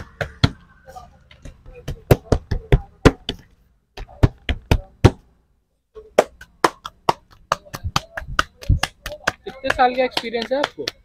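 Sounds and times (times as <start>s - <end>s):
dough slapped between palms: 6.1s - 11.0s.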